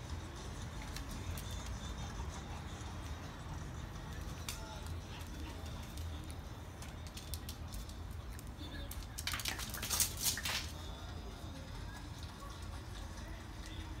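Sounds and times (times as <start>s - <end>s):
dog claws clicking on hard floor: 5.4s - 10.8s.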